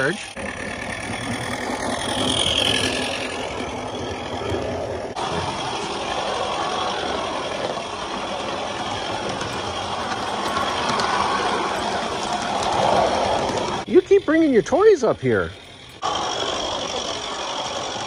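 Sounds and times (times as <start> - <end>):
model steam locomotive running: 0.0 - 18.0.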